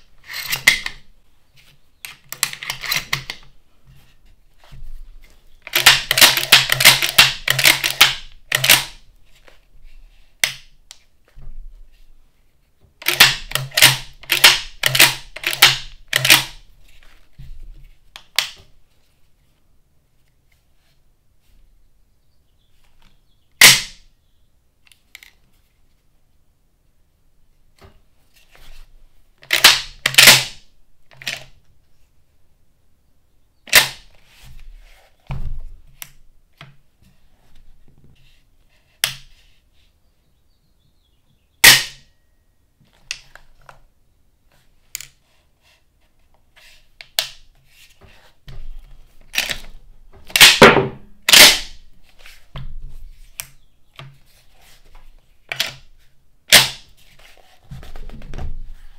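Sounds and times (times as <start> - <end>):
shotgun action metallic clicks: 5.7 - 9.0, 13.0 - 16.6.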